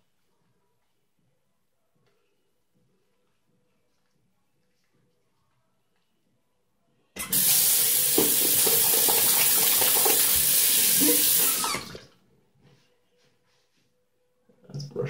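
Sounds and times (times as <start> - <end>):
sink tap running: 7.2 - 12.0.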